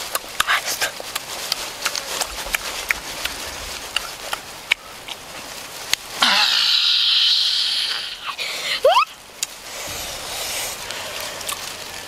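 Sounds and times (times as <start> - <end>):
lip smacks and chewing: 0.0 - 6.1, 10.8 - 12.0
loud steady high hiss: 0.0 - 12.0.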